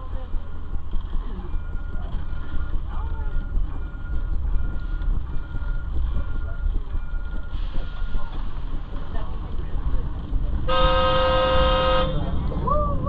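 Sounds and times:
streetcar rumble on board: 0:00.0 - 0:13.0
short electronic beeps: 0:00.3 - 0:08.4.

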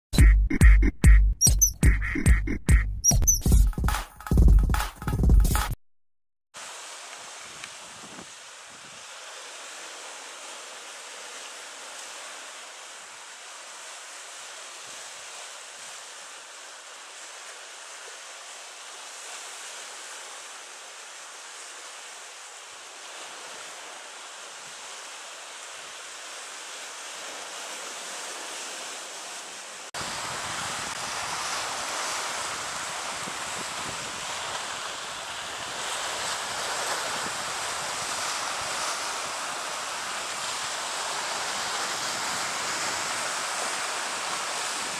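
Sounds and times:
sea waves on shore: 0:06.6 - 0:44.9
wind rumble on microphone: 0:07.4 - 0:09.0, 0:30.0 - 0:34.9, 0:35.5 - 0:38.9.

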